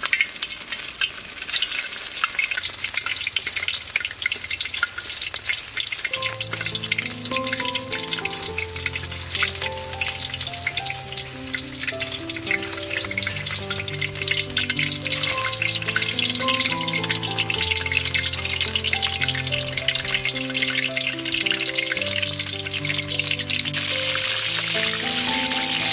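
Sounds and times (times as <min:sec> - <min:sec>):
food sizzling in hot oil: 0:00.0 - 0:25.9
soft melodic background music: 0:06.1 - 0:25.9.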